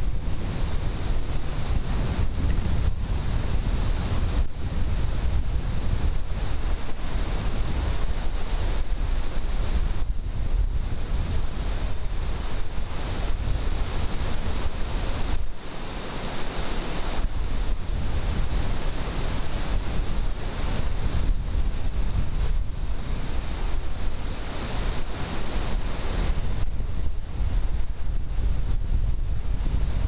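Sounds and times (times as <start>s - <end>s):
wind rumbling on microphone: 0.0s - 30.0s
whitewater rushing: 10.7s - 27.9s.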